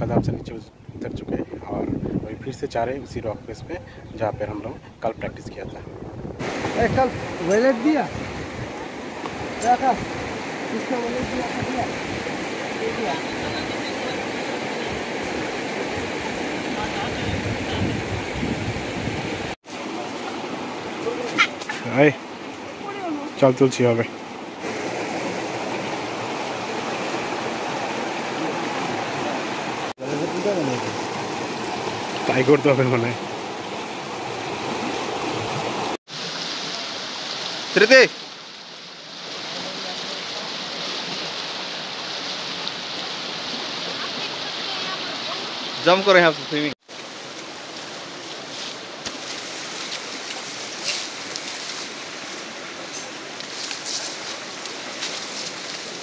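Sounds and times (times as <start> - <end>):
river rushing over rocks: 6.4 - 56.0
leaves and branches crackling: 46.8 - 56.0.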